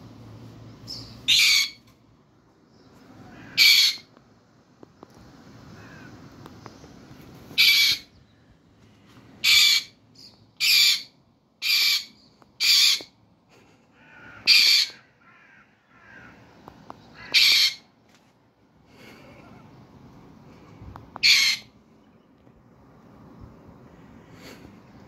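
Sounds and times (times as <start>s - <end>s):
parrot squawking: 1.0s - 1.9s, 3.3s - 4.1s, 7.6s - 8.1s, 9.4s - 10.0s, 10.6s - 13.1s, 14.4s - 15.0s, 17.2s - 17.9s, 21.2s - 21.7s.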